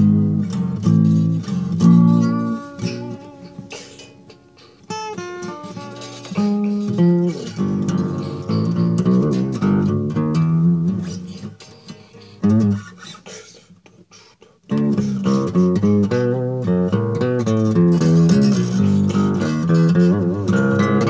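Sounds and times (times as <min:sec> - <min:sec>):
guitar music: 0:00.0 - 0:13.3, 0:14.0 - 0:21.0.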